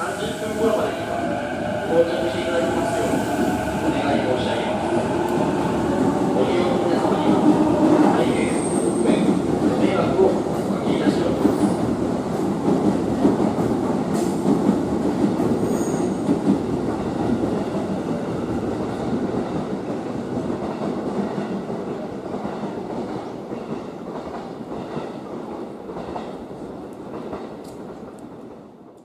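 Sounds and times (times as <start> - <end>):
electric train pulling away: 0.0 - 9.1.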